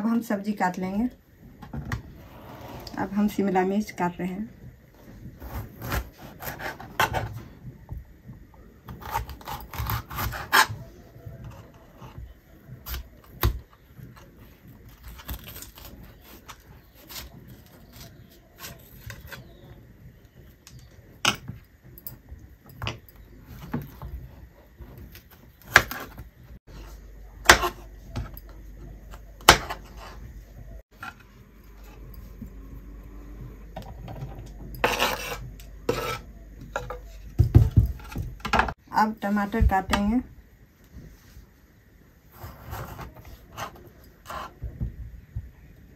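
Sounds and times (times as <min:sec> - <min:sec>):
knife chopping on board: 0:27.4 - 0:28.4, 0:29.1 - 0:30.2.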